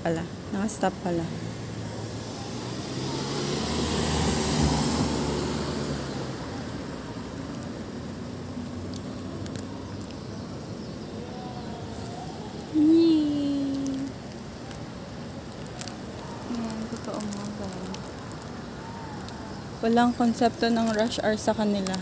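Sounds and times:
traffic hum: 0:00.0 - 0:22.0
vehicle passing close by: 0:01.2 - 0:10.0.

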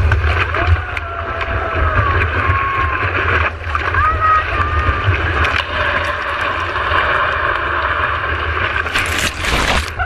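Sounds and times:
surf and rushing water: 0:00.0 - 0:10.0
wave splashing over camera: 0:00.0 - 0:10.0.

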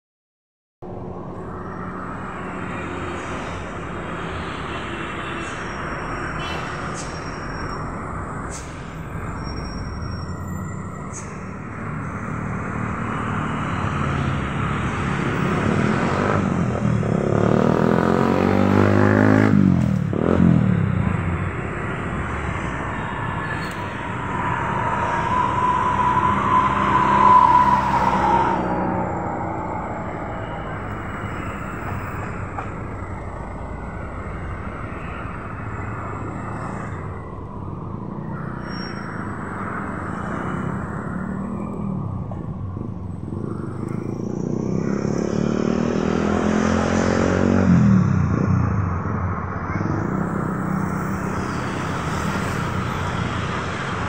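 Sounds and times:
outdoor traffic noise: 0:00.8 - 0:54.0
steady higher tone: 0:20.7 - 0:39.6.

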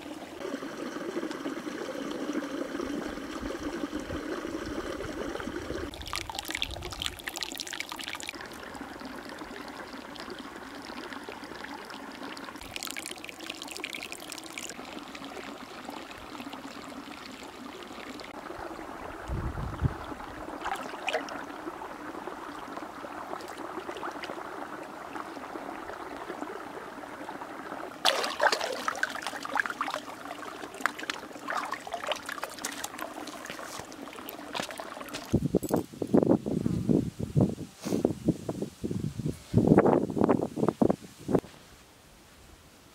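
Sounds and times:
water trickling and splashing: 0:00.0 - 0:36.2.

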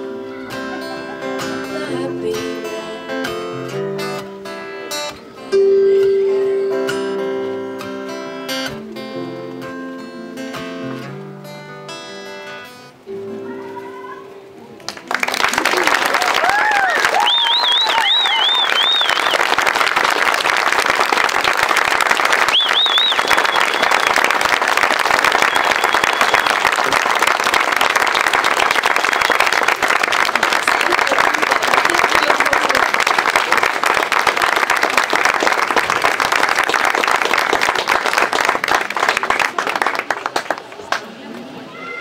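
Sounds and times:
audience applauding: 0:14.8 - 0:41.5.

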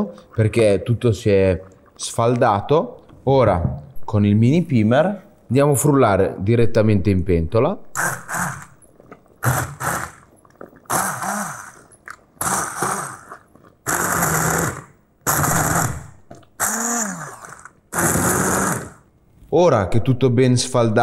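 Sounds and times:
immersion blender motor whirring: 0:08.0 - 0:08.8, 0:09.4 - 0:10.2, 0:10.9 - 0:13.3, 0:13.9 - 0:19.0.

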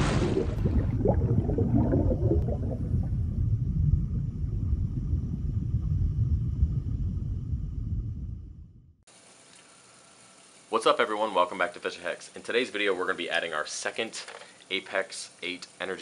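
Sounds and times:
bubbling gurgles: 0:00.0 - 0:08.3
deep underwater rumble: 0:00.0 - 0:09.0.

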